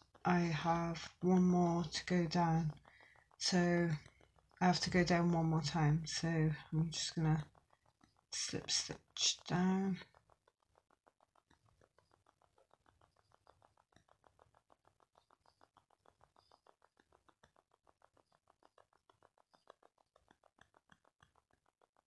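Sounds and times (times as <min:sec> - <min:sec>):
faint even ticking: 0:00.0 - 0:10.5.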